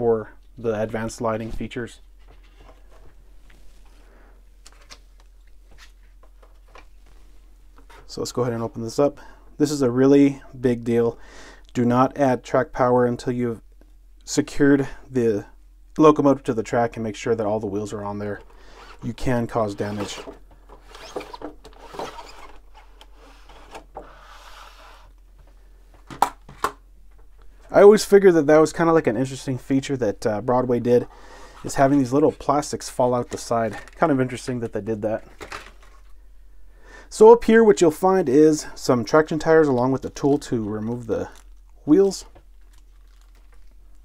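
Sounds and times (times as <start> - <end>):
paper and plastic rustling: 33.2 - 34.4, 39.2 - 44.0
plastic packaging crinkling: 39.7 - 44.0.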